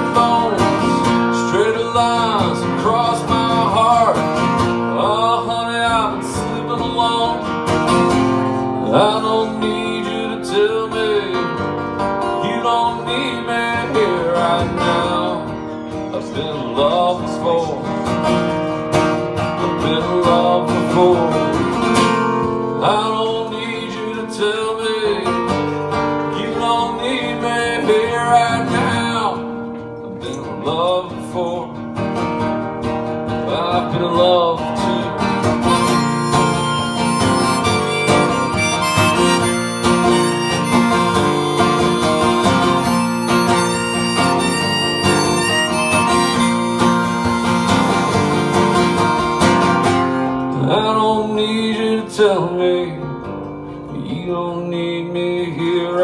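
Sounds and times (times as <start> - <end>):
person singing: 0.0 - 7.6, 8.8 - 11.6, 12.2 - 18.2, 19.5 - 21.9, 22.8 - 25.4, 26.2 - 29.4, 33.4 - 49.4
acoustic guitar strumming: 0.0 - 56.0.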